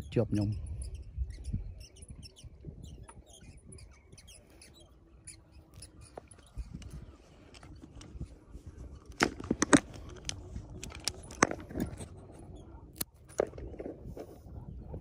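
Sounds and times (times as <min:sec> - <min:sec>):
fishing tackle clicking: 0:09.0 - 0:12.0.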